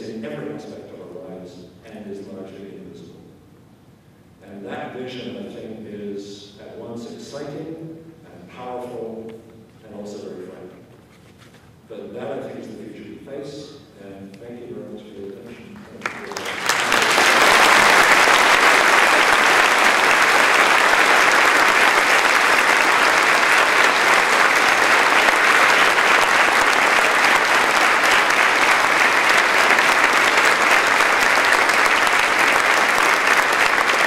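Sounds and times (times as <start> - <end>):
audience applauding: 16.0 - 34.0.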